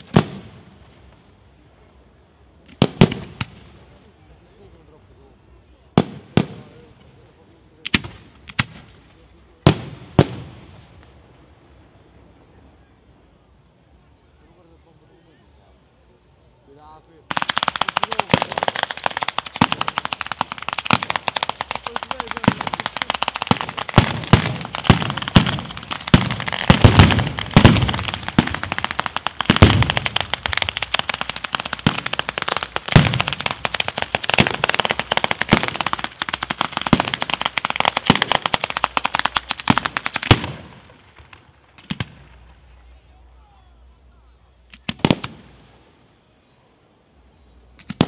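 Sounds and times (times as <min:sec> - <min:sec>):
firecrackers banging: 0:17.2 - 0:42.8
heavy firework booms: 0:17.3 - 0:42.5.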